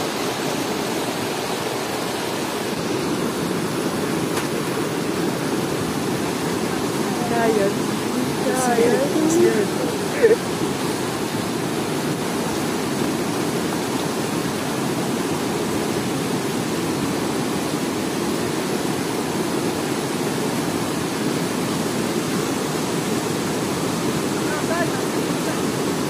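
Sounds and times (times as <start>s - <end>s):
river rushing over boulders: 0.0s - 26.0s.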